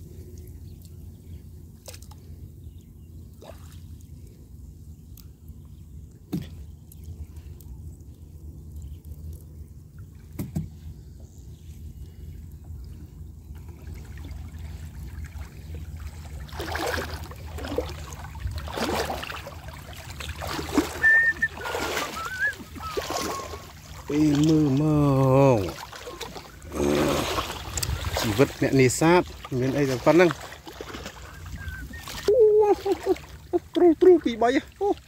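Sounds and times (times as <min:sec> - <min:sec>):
steady low rumble: 0:00.0 - 0:33.8
water sloshing from wading: 0:00.0 - 0:35.0
wavering whistle-like tone: 0:20.8 - 0:24.0, 0:31.3 - 0:32.6.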